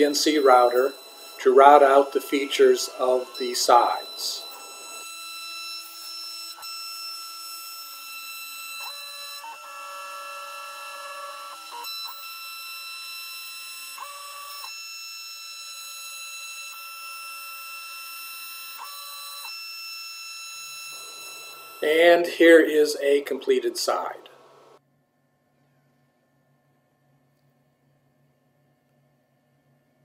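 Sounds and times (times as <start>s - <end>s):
router motor whining: 0.0s - 22.5s.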